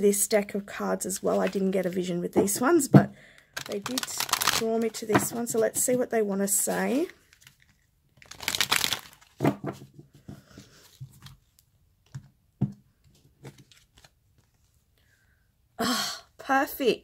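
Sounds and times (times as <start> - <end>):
cards shuffling: 3.6 - 6.0, 6.6 - 9.6, 13.4 - 14.8.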